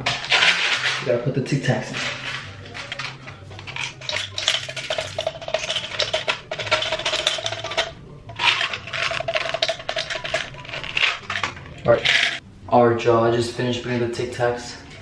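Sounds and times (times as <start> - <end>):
mints clattering into plastic bottle: 0.0 - 1.2, 1.8 - 12.4
mints rattling in plastic box: 0.1 - 1.1, 1.9 - 12.4.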